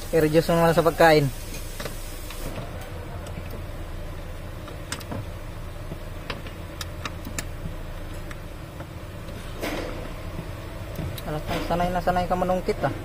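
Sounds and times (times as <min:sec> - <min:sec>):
steady low hum: 0:00.0 - 0:13.0
metallic clicks and taps: 0:06.2 - 0:08.9.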